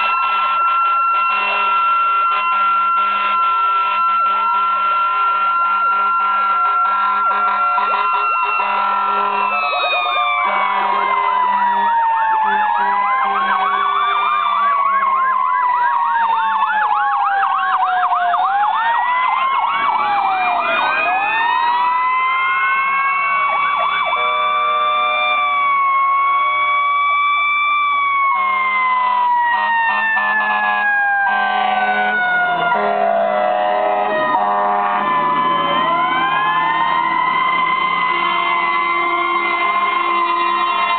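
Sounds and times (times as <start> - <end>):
horn tones: 0.0 - 14.0, 24.1 - 25.5, 29.5 - 36.0, 38.0 - 40.9
siren yelp warbling: 0.0 - 40.9
sirens wailing: 0.0 - 40.9.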